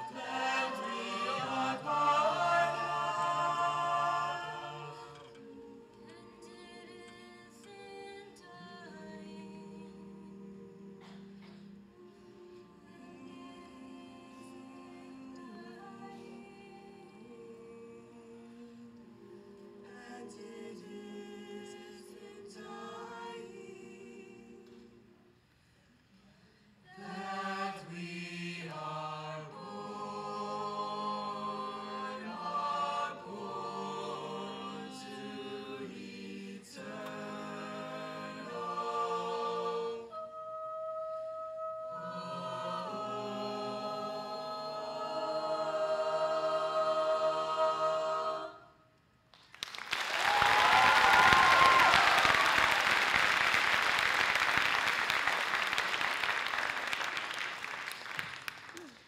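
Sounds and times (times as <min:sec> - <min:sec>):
a cappella group singing in harmony: 0:00.0 - 0:49.2
audience applauding: 0:49.4 - 0:59.0
audience cheering: 0:49.8 - 0:59.0.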